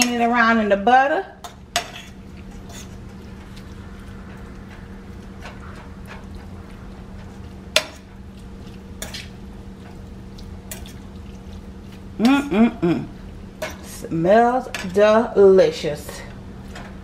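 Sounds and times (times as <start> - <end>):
steady low hum: 0.0 - 17.0
fork scraping food in skillet: 1.4 - 12.1.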